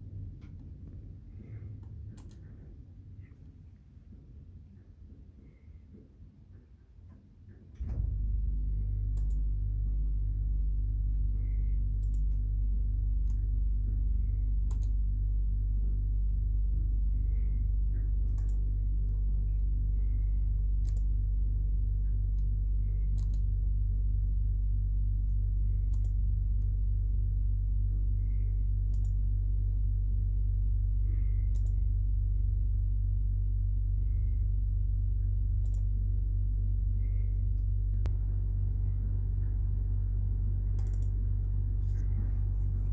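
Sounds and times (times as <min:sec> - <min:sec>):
low electrical hum: 0:00.0 - 0:42.9
computer mouse clicks: 0:01.8 - 0:02.7, 0:09.1 - 0:09.4, 0:12.0 - 0:12.4, 0:14.6 - 0:15.0, 0:18.3 - 0:18.7, 0:20.8 - 0:21.1, 0:23.1 - 0:23.5, 0:25.9 - 0:26.7, 0:28.9 - 0:29.2, 0:31.4 - 0:31.8, 0:35.6 - 0:35.9, 0:40.8 - 0:41.2.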